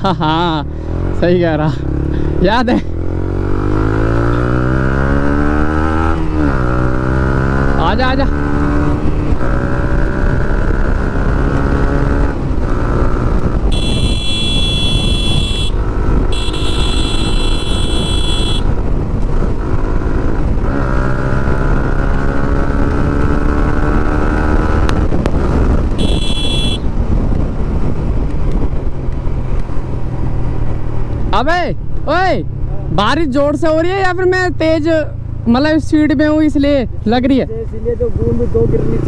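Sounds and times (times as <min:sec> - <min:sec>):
motorcycle engine revving: 0:00.4 - 0:31.3
horn blasts: 0:13.7 - 0:18.7, 0:26.0 - 0:26.9
wind on microphone: 0:22.9 - 0:29.2.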